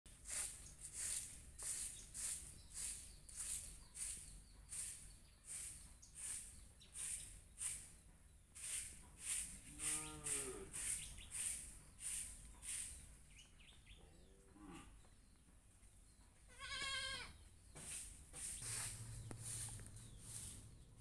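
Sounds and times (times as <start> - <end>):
goat bleating: 16.5 - 17.4.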